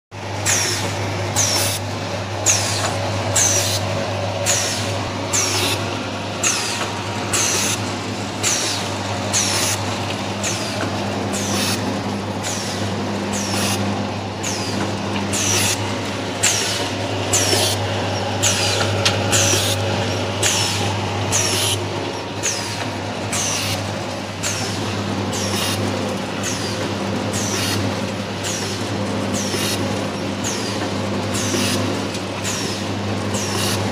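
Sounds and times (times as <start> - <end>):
low machine hum: 0.2 - 33.9
packing machine hiss: 2.4 - 5.8, 6.4 - 7.8.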